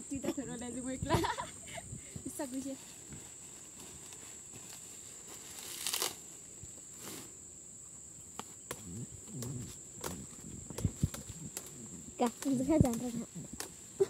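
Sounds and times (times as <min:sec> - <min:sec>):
leaves rustling: 0:00.0 - 0:14.0
stems snapping: 0:05.7 - 0:06.2, 0:08.3 - 0:13.8.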